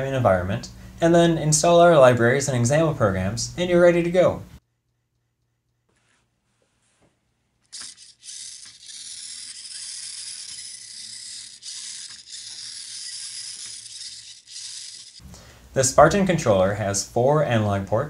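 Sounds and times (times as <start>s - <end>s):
metal parts clicking and rattling: 7.8s - 15.2s.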